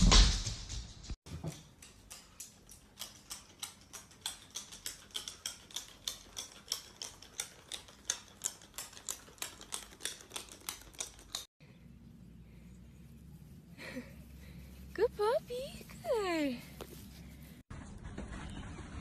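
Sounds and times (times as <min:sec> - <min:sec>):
claws clicking on tile floor: 0:01.3 - 0:11.5.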